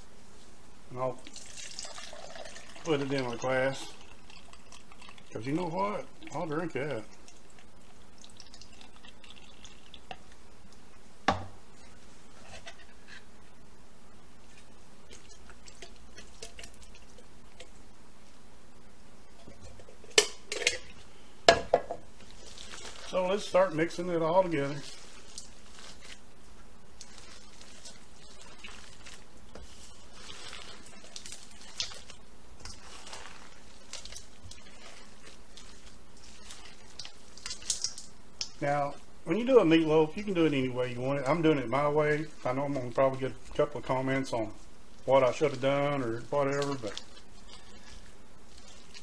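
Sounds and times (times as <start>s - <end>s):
juice trickling into a glass: 1.2s - 10.4s
hands squishing meat mix: 14.4s - 17.8s, 22.2s - 49.0s.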